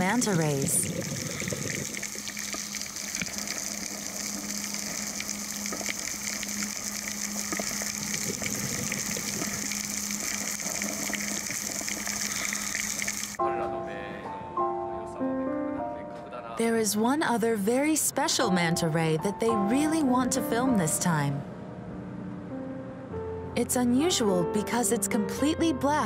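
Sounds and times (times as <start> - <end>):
underwater crackling: 0.0 - 13.4.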